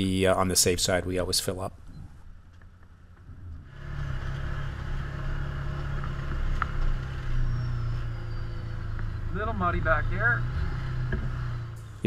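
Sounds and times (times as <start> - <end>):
vehicle engine running: 2.9 - 12.0.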